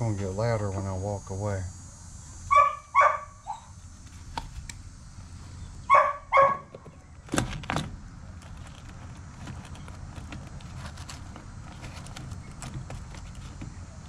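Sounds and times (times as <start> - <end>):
dogs barking: 2.5 - 3.8, 5.8 - 6.8.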